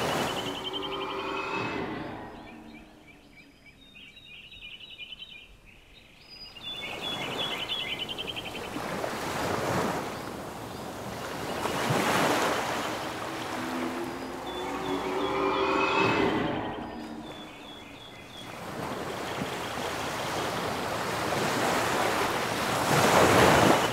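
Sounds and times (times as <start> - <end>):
waves breaking on beach: 0.0 - 1.9, 6.6 - 23.9.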